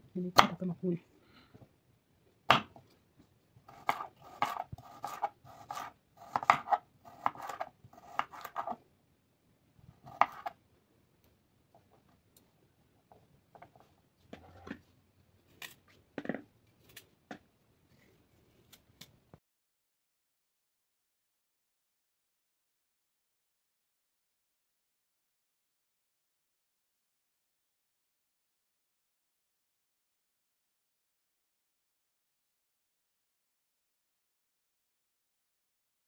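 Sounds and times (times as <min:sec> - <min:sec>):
knife chopping on wooden board: 0:02.5 - 0:02.8, 0:03.7 - 0:08.8, 0:10.0 - 0:10.6.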